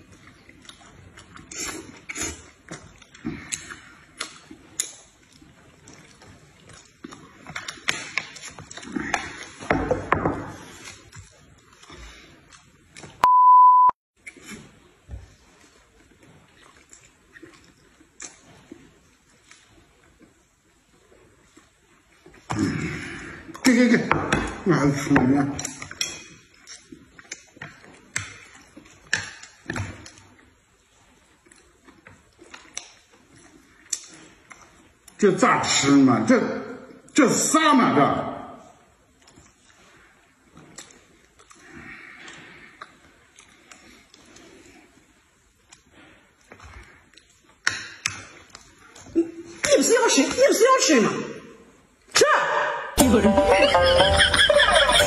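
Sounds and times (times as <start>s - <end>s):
chewing: 0.0s - 9.7s, 10.6s - 13.2s, 14.2s - 23.7s, 25.5s - 35.2s, 39.0s - 49.7s
loud electronic beep: 13.2s - 14.0s.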